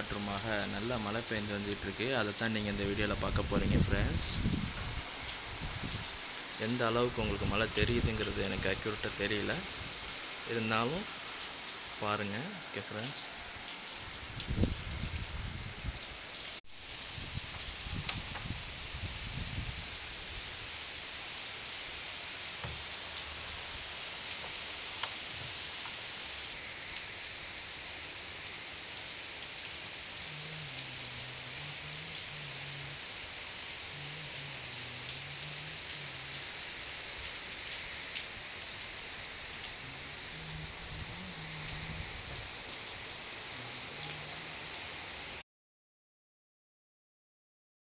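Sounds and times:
heavy rain hissing: 0:00.0 - 0:45.4.

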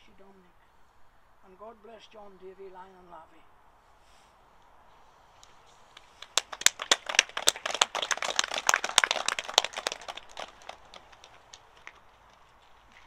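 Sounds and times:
people clapping: 0:05.9 - 0:13.0.

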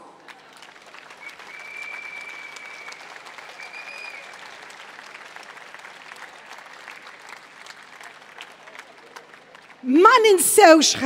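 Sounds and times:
crowd applauding: 0:00.0 - 0:10.8
high steady whistle: 0:01.2 - 0:04.2.

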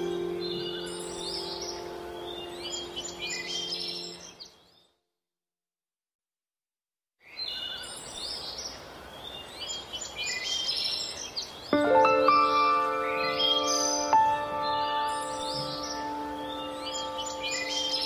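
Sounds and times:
held music chord: 0:00.0 - 0:04.3, 0:11.8 - 0:18.0
songbirds chirping: 0:00.0 - 0:05.0, 0:07.2 - 0:18.0.

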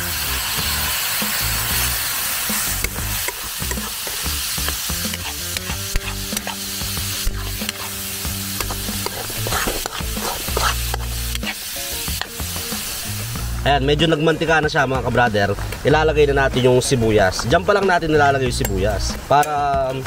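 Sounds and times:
ground beef sizzling in a wok: 0:00.0 - 0:13.7
spatula scraping a pan: 0:01.7 - 0:13.1.

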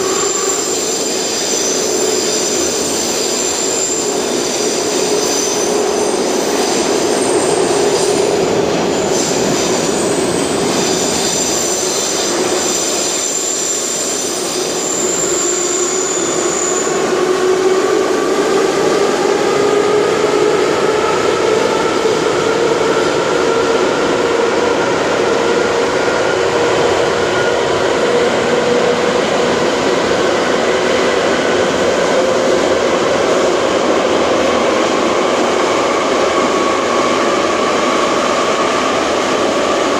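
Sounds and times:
high squeal: 0:00.0 - 0:17.5
metro train rumbling in tunnel: 0:00.0 - 0:39.9.

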